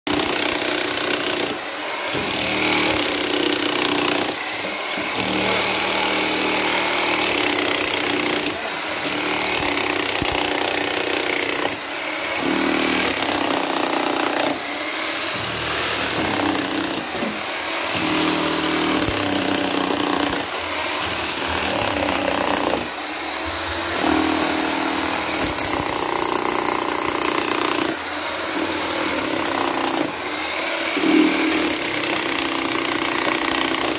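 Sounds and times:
demolition hammer hammering: 0:00.1 - 0:33.9.

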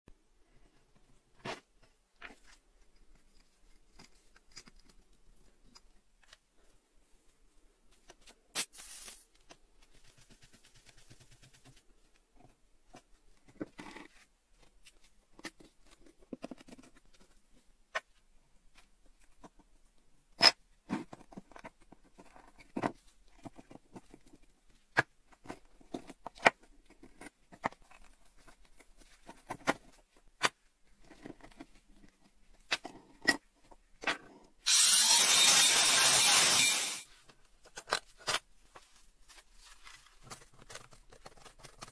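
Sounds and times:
aerosol spray: 0:08.6 - 0:09.2
rotary tool grinding metal: 0:34.6 - 0:37.1.

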